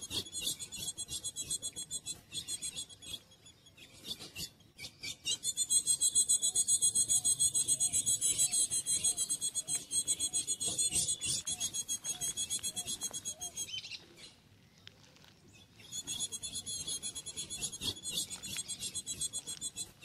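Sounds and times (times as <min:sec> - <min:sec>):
insect pulsing trill: 0:00.0 - 0:03.1, 0:05.5 - 0:13.7, 0:15.9 - 0:20.0.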